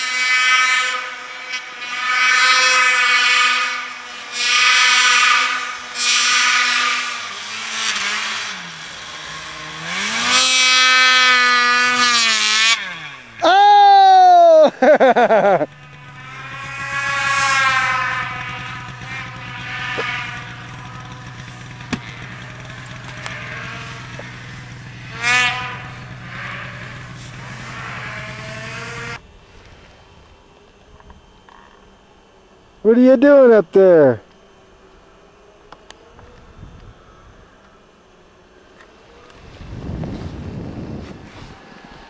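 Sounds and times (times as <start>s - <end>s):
snowmobile engine revving: 0.0s - 29.2s.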